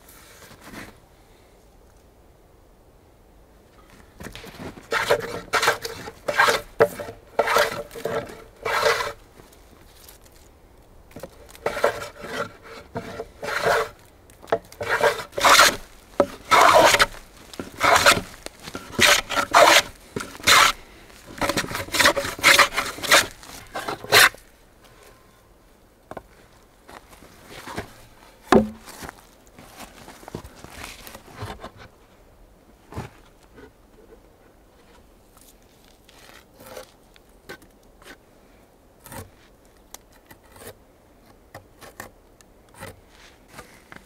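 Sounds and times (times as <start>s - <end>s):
hand plane shaving wood: 4.8s - 9.2s, 11.3s - 24.4s.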